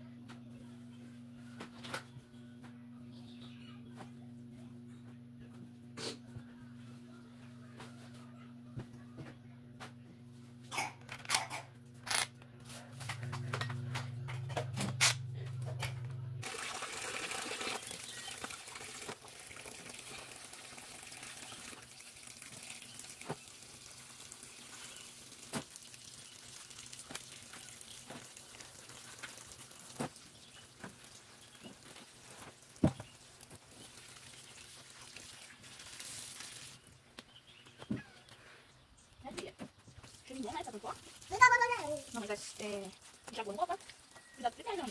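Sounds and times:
low hum: 0.0 - 18.8
tap water running into a sink: 16.4 - 36.8
clothes being handled in water: 16.4 - 37.1.

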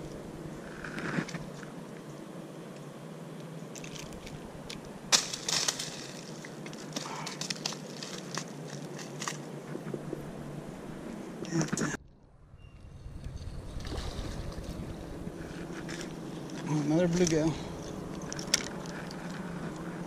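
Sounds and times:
steady low hum: 0.0 - 20.0
dry leaves and twigs crunching: 3.7 - 9.9, 13.2 - 20.0.

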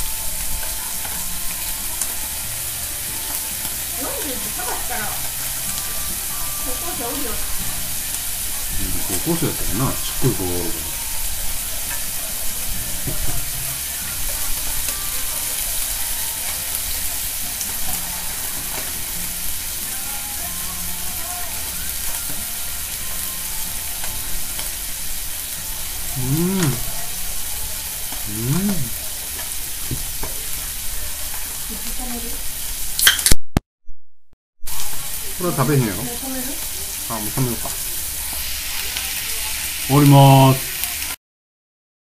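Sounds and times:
food sizzling on hot plate: 0.0 - 33.4, 34.7 - 41.2
short voice sounds: 26.2 - 26.9, 28.2 - 29.0.

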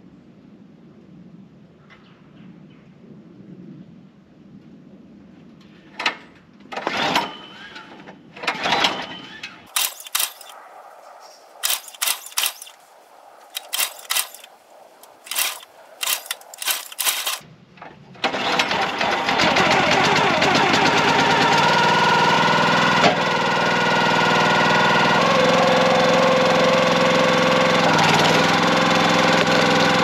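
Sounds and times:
engine pull-start cord: 6.0 - 10.6, 11.6 - 12.8, 13.5 - 17.4, 24.8 - 30.0
sharp clicks: 9.7 - 10.8, 11.5 - 17.4
engine running: 9.7 - 17.4, 18.2 - 30.0.

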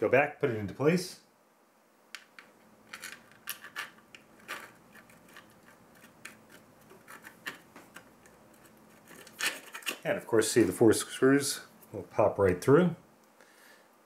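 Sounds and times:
metal parts and screws clicking: 2.2 - 10.1.

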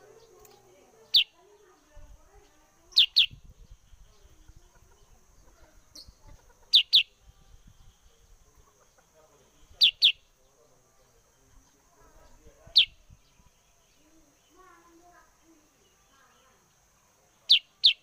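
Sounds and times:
bird calling sharp notes: 9.7 - 10.3.

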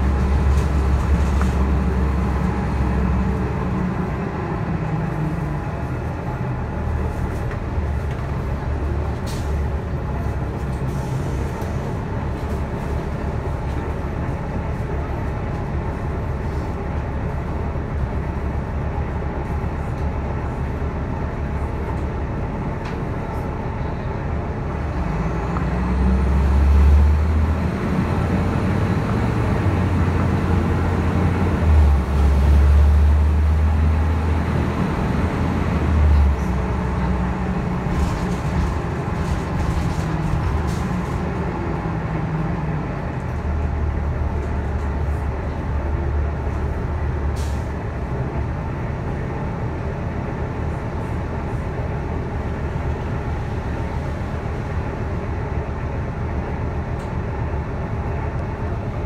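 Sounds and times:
bus engine drone: 0.0 - 59.0.

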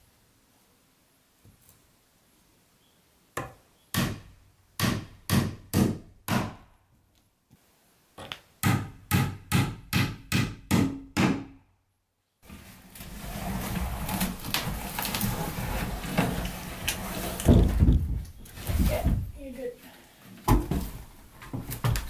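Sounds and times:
hammer driving nails into wood: 3.4 - 6.7, 8.2 - 11.6.

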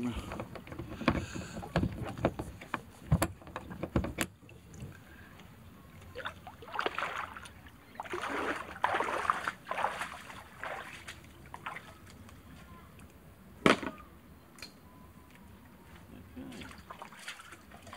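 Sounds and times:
water sloshing and splashing: 0.0 - 13.0, 15.6 - 17.9
knocks against kayak hull: 0.2 - 4.4.

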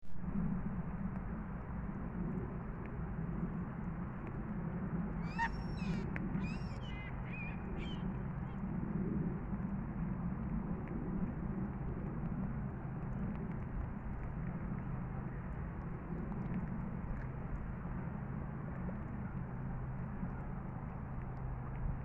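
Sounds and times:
steady low rumble: 0.0 - 22.0
water birds calling: 5.1 - 8.7.

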